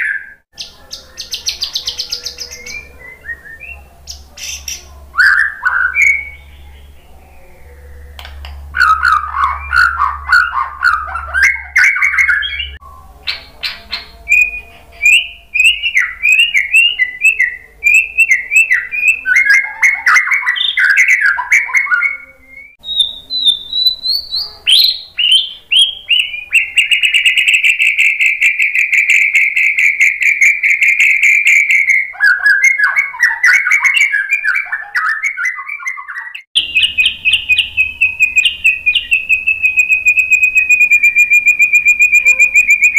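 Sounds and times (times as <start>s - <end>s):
bird singing whistled phrases: 0.0s - 6.6s, 8.8s - 42.9s
bird buzzy rattle: 39.1s - 42.9s.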